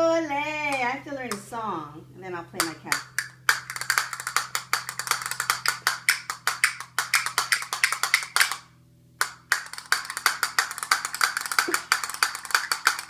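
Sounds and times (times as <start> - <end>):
castanets clicking: 2.6 - 13.0.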